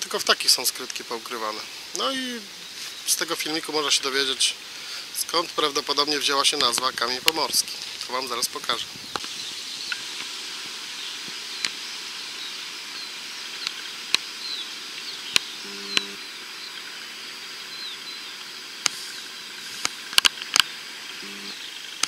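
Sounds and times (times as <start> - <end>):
small birds chirping: 0.0 - 22.0
steady hiss: 0.0 - 22.0
sharp clicks: 15.0 - 16.8
brief low tone: 15.7 - 16.2, 21.2 - 21.6.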